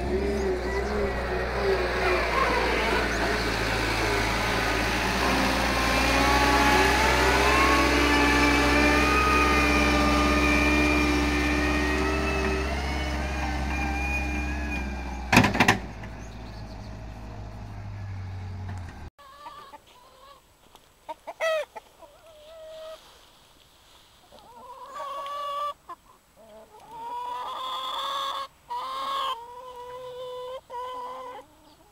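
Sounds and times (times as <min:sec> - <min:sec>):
drawn-out pitched calls: 0:00.0 - 0:15.3
wheel loader engine running: 0:00.0 - 0:19.1.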